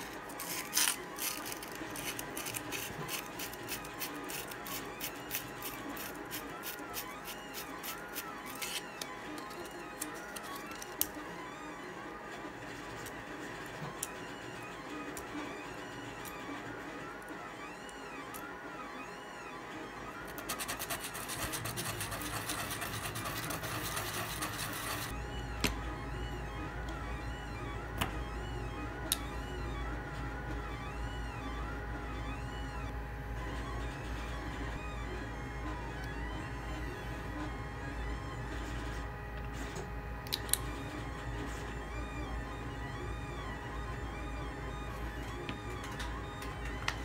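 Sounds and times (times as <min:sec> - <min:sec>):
plastic parts clicking and scraping: 0:00.0 - 0:11.2.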